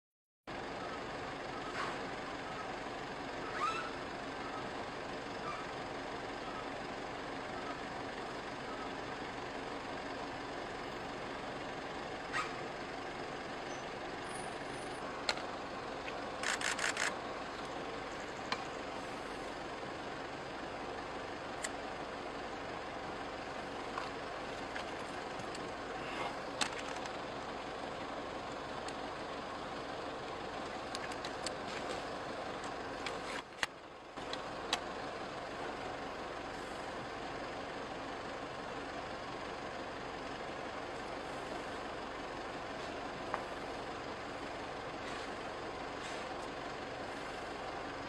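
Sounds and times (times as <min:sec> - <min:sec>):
vehicle engines idling: 0:00.5 - 0:48.0.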